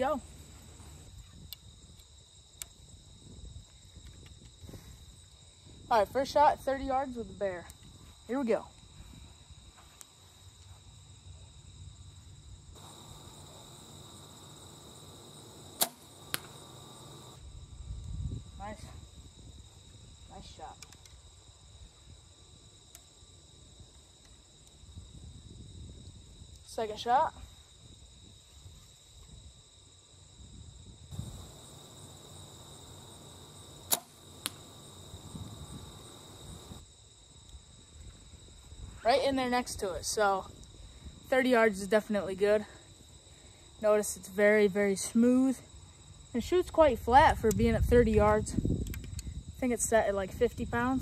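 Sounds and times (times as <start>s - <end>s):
insect buzz: 0.0s - 42.0s, 42.6s - 46.4s, 48.5s - 49.7s
arrow striking target: 15.8s - 16.6s, 33.8s - 34.7s
bow string snap: 15.8s - 16.7s, 33.8s - 34.8s
small click: 48.8s - 49.3s.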